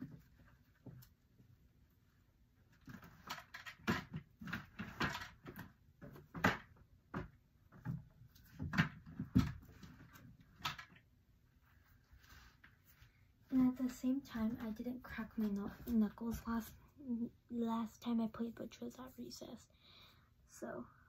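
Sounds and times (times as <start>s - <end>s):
objects knocking and clicking: 2.8s - 11.1s.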